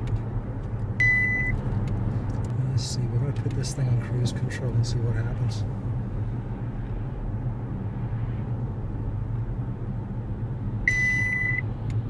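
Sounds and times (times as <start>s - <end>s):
car cabin road hum: 0.0s - 12.0s
high-pitched warning beep: 1.0s - 1.6s, 10.9s - 11.6s.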